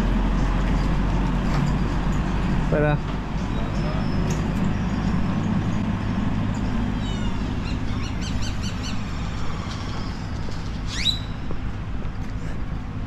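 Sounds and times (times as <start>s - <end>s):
vehicle engine idling: 0.0s - 13.0s
bird chirping: 3.4s - 5.1s, 6.6s - 11.5s
sharp rising whistle: 10.9s - 11.4s.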